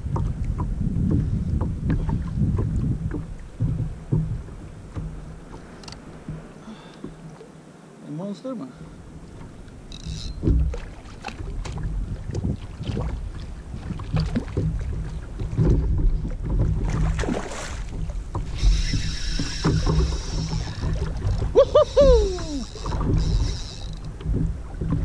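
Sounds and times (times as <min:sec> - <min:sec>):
wind buffeting microphone: 0:00.0 - 0:07.4, 0:08.8 - 0:25.0
water lapping against kayak hull: 0:00.0 - 0:08.0, 0:08.7 - 0:25.0
knocks and clicks: 0:00.1 - 0:06.5, 0:09.9 - 0:10.8, 0:17.9 - 0:25.0.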